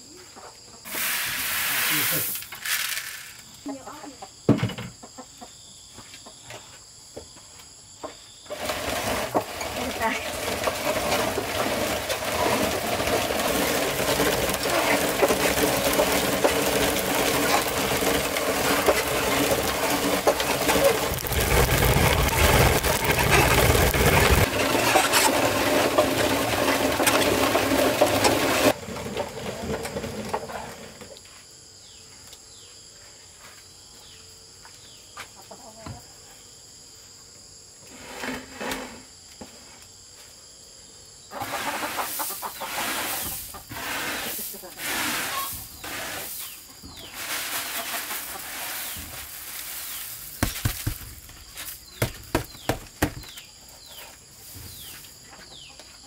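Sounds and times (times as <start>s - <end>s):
wooden mill grinding rice: 0.9s - 3.3s, 8.5s - 31.1s, 41.4s - 55.2s.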